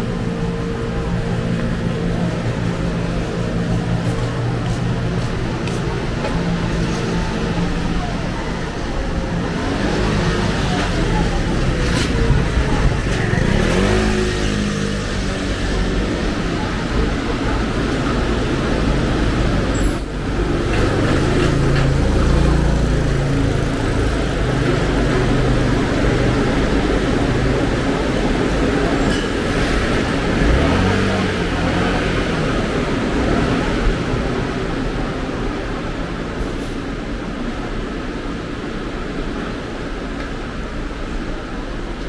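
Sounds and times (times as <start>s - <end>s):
vehicles passing: 0.0s - 42.0s
engine revving: 9.5s - 16.2s, 29.6s - 32.8s.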